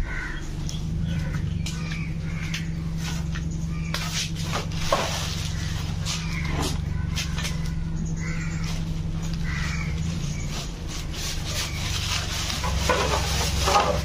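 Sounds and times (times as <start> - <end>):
steady low hum: 0.0 - 14.0
plastic bag rustling: 4.3 - 7.6, 10.3 - 14.0.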